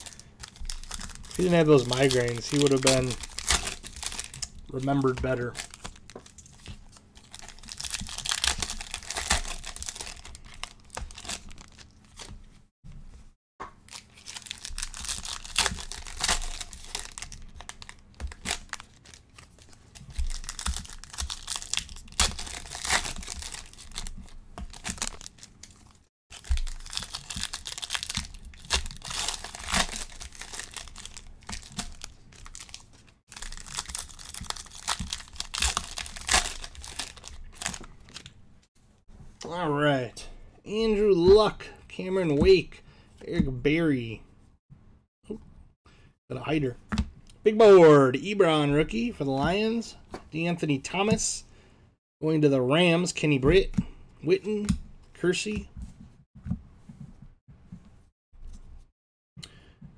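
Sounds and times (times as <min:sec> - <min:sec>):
wrappers tearing and crinkling: 0:00.0 - 0:12.3, 0:13.9 - 0:38.3.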